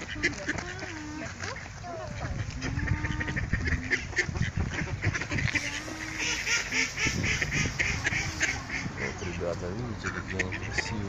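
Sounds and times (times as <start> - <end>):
ducks quacking: 0.0 - 11.0.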